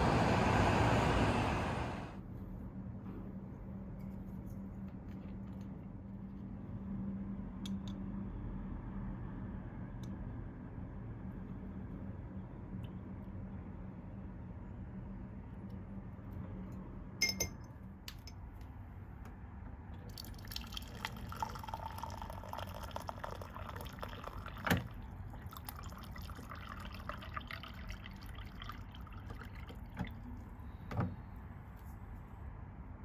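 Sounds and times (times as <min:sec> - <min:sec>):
water pouring into a mug: 0:20.1 - 0:30.3.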